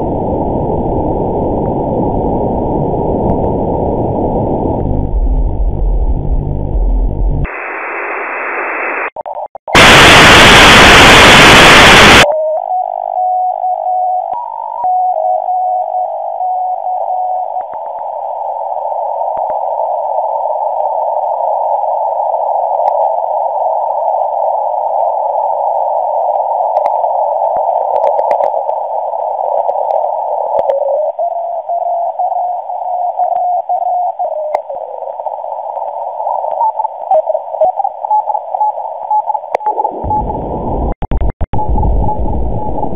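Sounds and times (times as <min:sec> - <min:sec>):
burst of radio static: 0:07.1 - 0:12.3
radio band noise hiss: 0:07.5 - 0:12.3.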